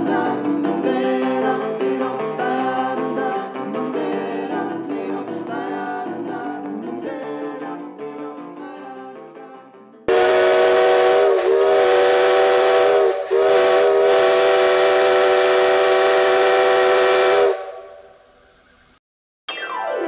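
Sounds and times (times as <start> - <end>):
steam locomotive whistle: 10.1 - 18.9
hiss of steam: 10.1 - 19.0.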